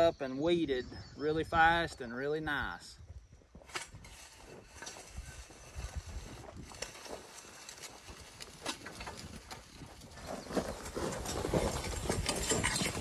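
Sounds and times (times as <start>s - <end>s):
hand plow scraping through soil: 3.6s - 13.0s.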